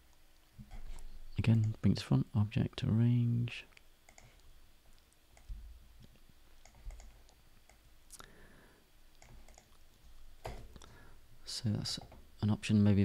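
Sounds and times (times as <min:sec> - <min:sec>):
computer mouse clicks: 0:00.6 - 0:01.8, 0:03.7 - 0:07.8, 0:09.1 - 0:10.6.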